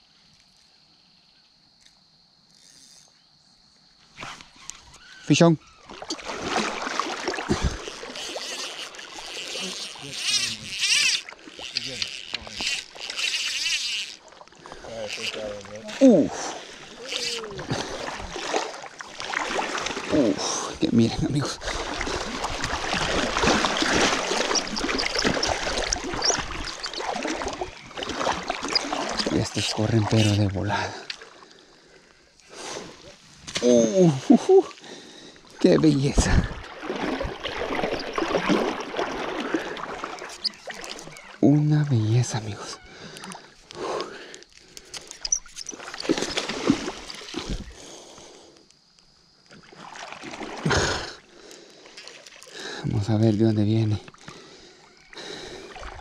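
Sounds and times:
water splashing and rushing: 0:05.8 - 0:31.5, 0:35.5 - 0:42.5, 0:45.4 - 0:47.8, 0:49.5 - 0:51.3, 0:55.2 - 0:56.0.

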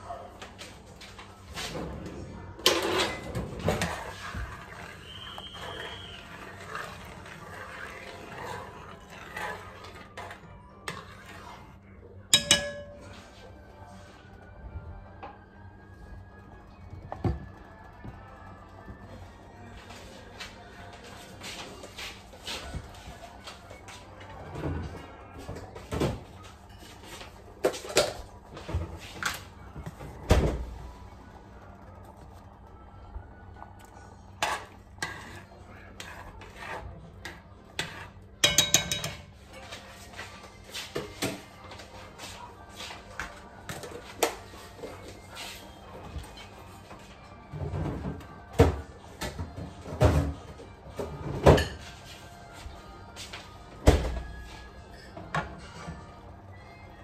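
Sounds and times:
kitchen knocks and clunks: 0:47.6 - 0:51.9, 0:53.8 - 0:54.3.

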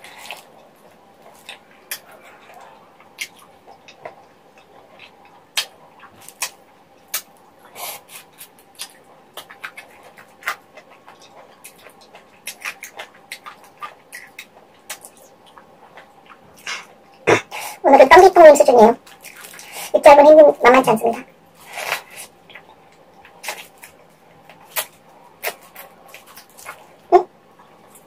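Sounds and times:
mouth gnawing and sucking: 0:21.6 - 0:27.3.

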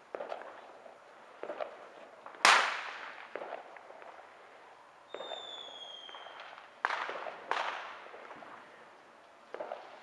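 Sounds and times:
high whistle-like tone: 0:05.1 - 0:06.4.

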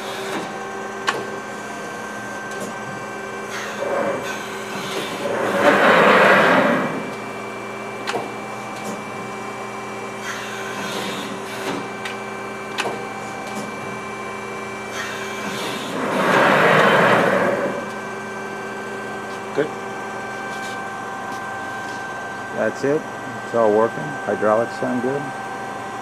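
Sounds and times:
hydraulic pump humming: 0:01.2 - 0:25.4
hydraulic flow rushing: 0:03.5 - 0:07.3, 0:15.0 - 0:18.2.

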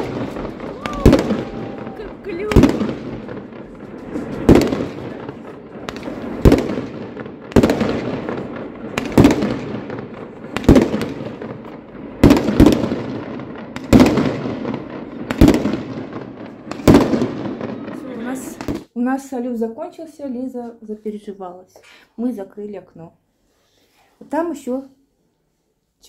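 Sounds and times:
fireworks bangs: 0:00.0 - 0:18.9.

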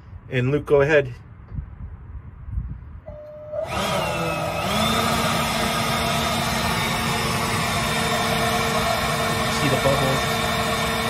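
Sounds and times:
leaf blower whining: 0:03.3 - 0:11.0.

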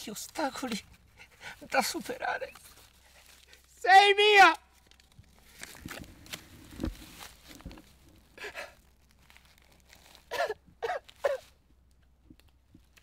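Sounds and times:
rustling of paper and grass: 0:00.0 - 0:03.8, 0:04.6 - 0:13.0
man gasping: 0:08.4 - 0:08.8.

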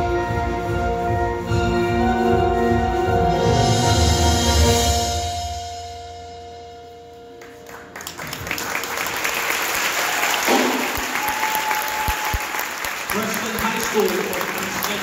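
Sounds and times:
audience applause and cheering: 0:07.6 - 0:15.0.

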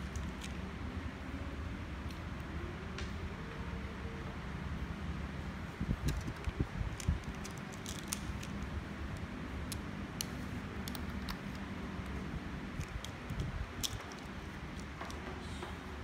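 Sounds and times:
steady low hum: 0:00.0 - 0:16.0
plastic parts clicking and clattering: 0:06.0 - 0:08.7, 0:12.8 - 0:15.5.

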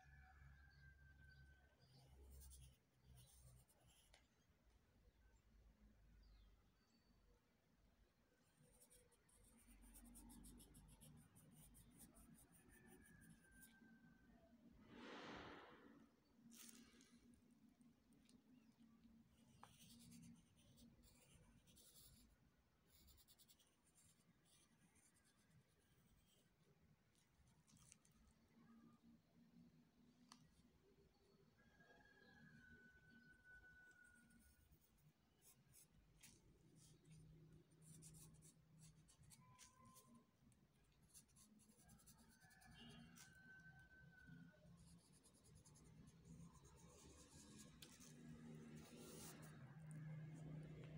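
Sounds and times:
pencil scratching on paper: 0:02.4 - 0:04.2, 0:08.7 - 0:13.9, 0:19.4 - 0:26.6, 0:34.0 - 0:44.0, 0:44.8 - 0:50.9.

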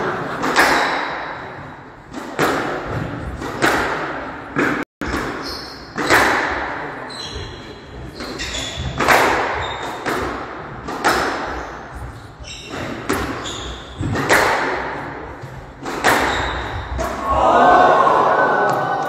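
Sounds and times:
squash ball hits echoing: 0:00.3 - 0:19.0
shoes squeaking on wooden floor: 0:05.3 - 0:06.2, 0:07.0 - 0:10.1, 0:11.5 - 0:14.3, 0:16.1 - 0:17.0.

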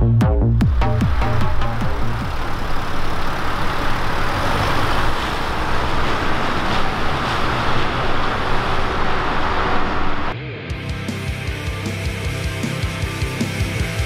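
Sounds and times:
car engine and exhaust rumble: 0:00.0 - 0:10.4
tyre noise on road: 0:00.6 - 0:10.4.

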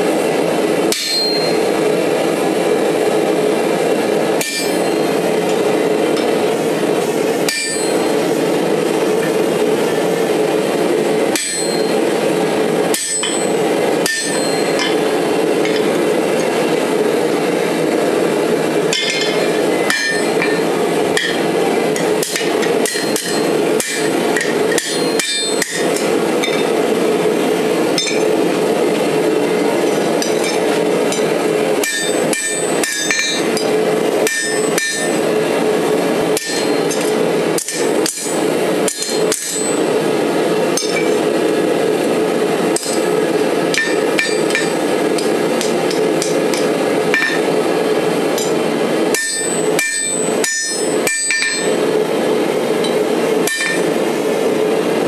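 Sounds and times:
loud steady rushing noise: 0:00.0 - 0:55.0
hammer striking metal punch: 0:00.9 - 0:01.6, 0:04.4 - 0:05.0, 0:07.5 - 0:08.1, 0:11.4 - 0:12.0, 0:12.9 - 0:15.0, 0:19.0 - 0:20.6, 0:21.2 - 0:21.4, 0:22.0 - 0:26.7, 0:30.2 - 0:35.2, 0:36.4 - 0:39.8, 0:42.8 - 0:43.0, 0:43.7 - 0:47.5, 0:48.4 - 0:51.8, 0:52.8 - 0:54.0.

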